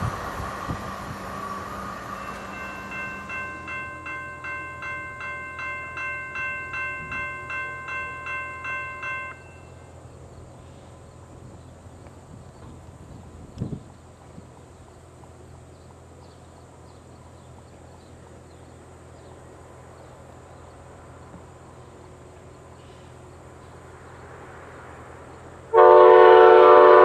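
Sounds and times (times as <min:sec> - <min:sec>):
railroad crossing bell ringing: 0:01.7 - 0:10.1.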